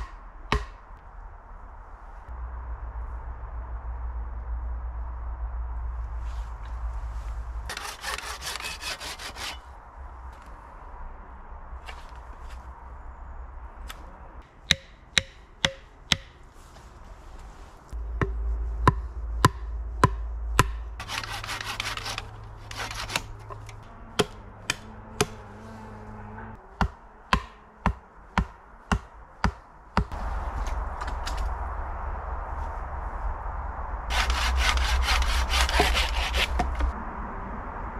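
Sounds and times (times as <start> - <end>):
hatchet chopping wood: 0.0 - 0.8, 7.7 - 9.6, 14.7 - 16.4, 24.2 - 25.4, 26.8 - 30.1
rough scraping: 6.1 - 10.5, 20.9 - 26.6, 34.1 - 37.0
steady rasping: 7.7 - 9.7, 19.5 - 25.4, 34.1 - 36.9.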